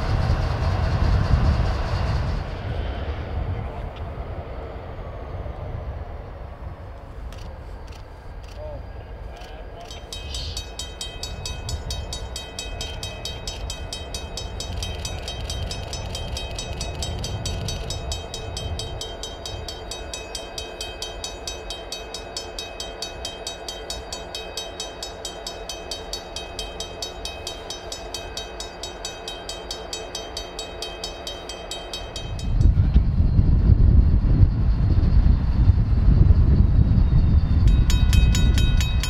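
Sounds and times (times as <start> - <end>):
diesel locomotives rumbling: 0.0 - 39.0
bell ringing: 9.8 - 32.7, 37.4 - 39.0.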